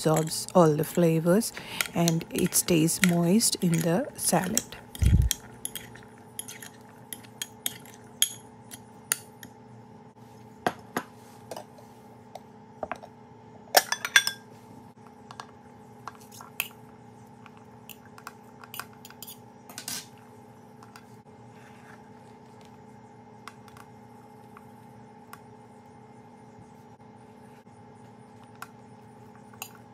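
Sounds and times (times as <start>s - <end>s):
faint steady hum: 0.0s - 29.9s
spoon clinking on glass bowls: 13.8s - 14.4s.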